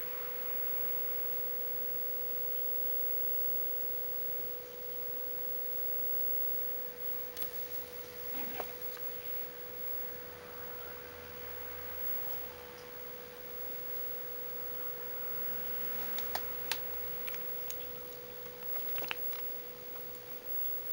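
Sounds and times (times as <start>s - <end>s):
steady high whine: 0.0s - 20.9s
faint clicks and rustles: 4.2s - 10.1s, 13.9s - 20.9s.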